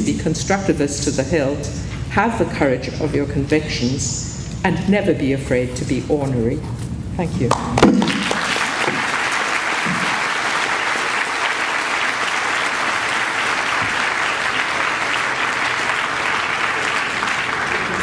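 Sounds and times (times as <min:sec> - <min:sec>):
audience applauding: 0:07.8 - 0:18.0.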